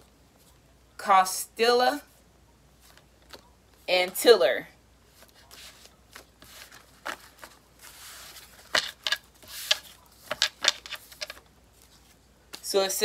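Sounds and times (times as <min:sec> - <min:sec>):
cards sliding rustle: 0:05.1 - 0:12.6
cards tapping on wooden table: 0:08.6 - 0:11.4.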